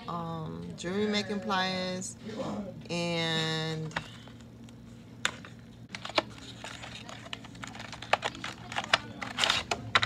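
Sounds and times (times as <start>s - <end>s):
crinkling: 5.4s - 10.0s.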